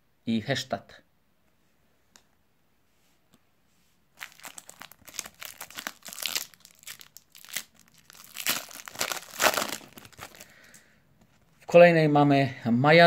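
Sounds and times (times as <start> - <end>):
foil wrapper crinkling and tearing: 4.2 - 10.8.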